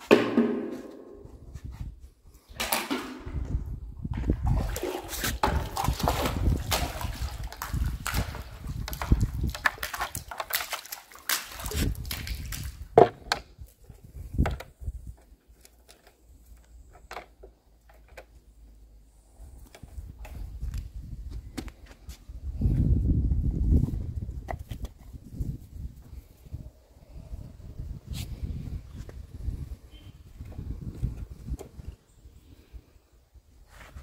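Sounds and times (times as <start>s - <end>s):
bucket knocking on concrete: 0.0s - 1.4s, 2.6s - 10.6s, 11.3s - 13.4s
water sloshing and splashing: 2.5s - 14.9s.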